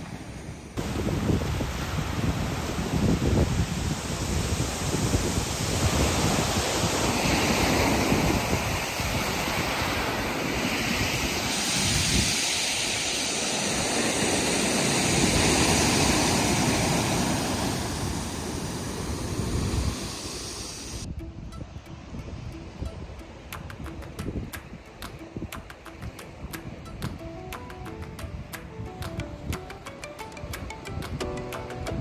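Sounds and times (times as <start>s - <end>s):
surf breaking over rocks: 0.0s - 20.7s
wind buffeting microphone: 0.0s - 32.0s.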